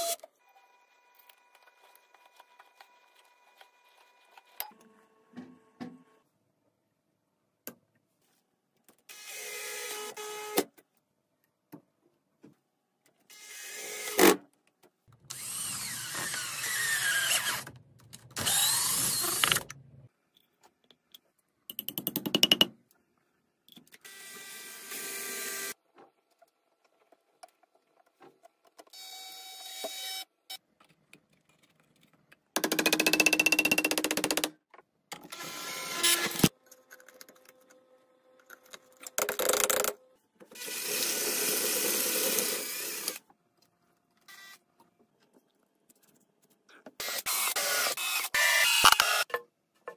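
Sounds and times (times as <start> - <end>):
drill boring into wood: 15.3 - 17.7, 18.4 - 19.6, 40.6 - 43.2, 47.0 - 49.3
power drill driving screws: 15.3 - 17.7, 18.4 - 19.7, 35.3 - 36.5, 40.6 - 43.2, 47.0 - 49.3.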